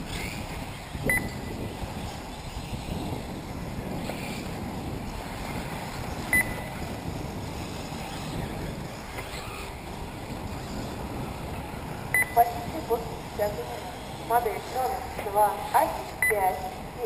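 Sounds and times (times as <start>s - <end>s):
wind noise on microphone: 0.0s - 17.0s.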